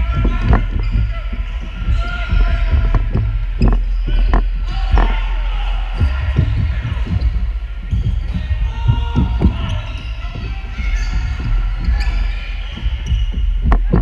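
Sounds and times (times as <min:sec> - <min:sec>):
players shouting: 0:00.0 - 0:14.0.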